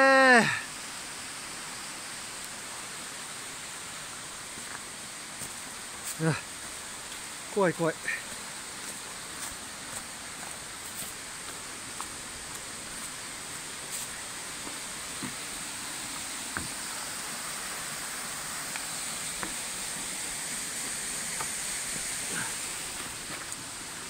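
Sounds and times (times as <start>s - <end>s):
waterfall rushing: 0.0s - 24.0s
footsteps on rocks and leaves: 8.2s - 15.4s.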